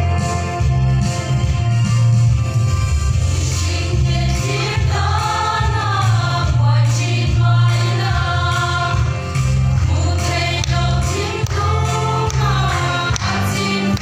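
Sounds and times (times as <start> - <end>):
instrumental accompaniment with bass: 0.0 - 14.0
women's choir singing gospel: 3.4 - 14.0.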